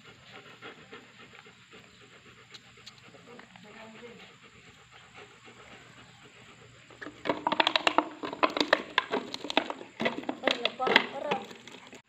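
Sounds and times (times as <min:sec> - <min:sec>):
puppies scuffling: 0:03.0 - 0:12.0.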